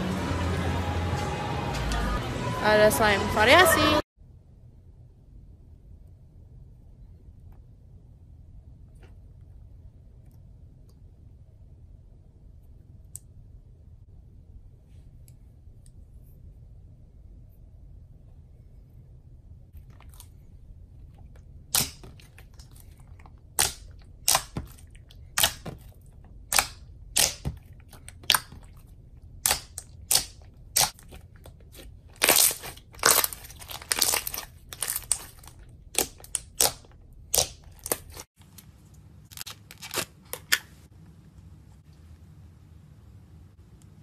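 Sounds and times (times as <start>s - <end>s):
faint low hum: 0.0s - 37.8s, 38.4s - 44.0s
slime popping and crackling: 21.7s - 25.9s, 26.5s - 28.8s, 29.4s - 38.3s.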